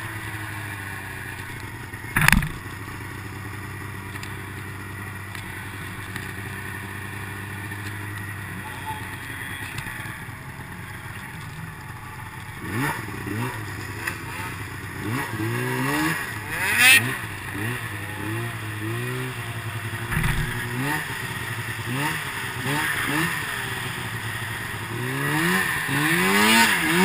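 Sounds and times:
snowmobile engine revving: 11.7s - 27.0s.

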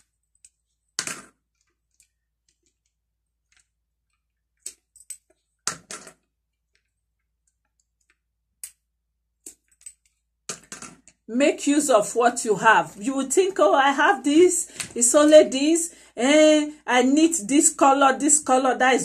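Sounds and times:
beads clicking: 0.0s - 11.3s.

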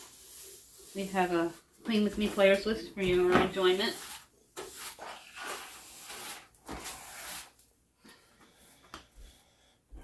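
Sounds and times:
broom sweeping wooden floor: 0.0s - 7.6s.

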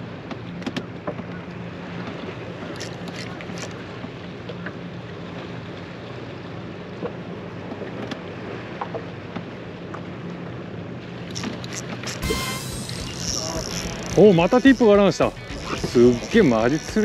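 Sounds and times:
boat engine humming: 0.0s - 17.0s
water around hull: 0.0s - 17.0s.

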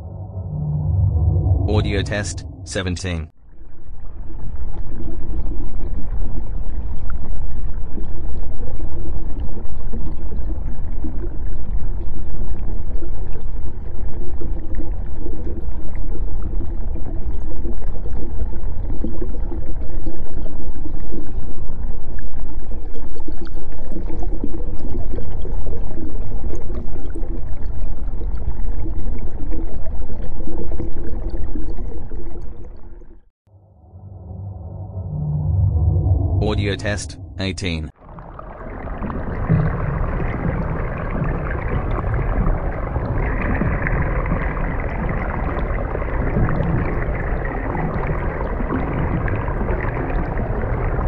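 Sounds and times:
faint wavering tones: 0.0s - 2.8s, 33.5s - 36.4s
underwater rumble: 0.0s - 51.0s.

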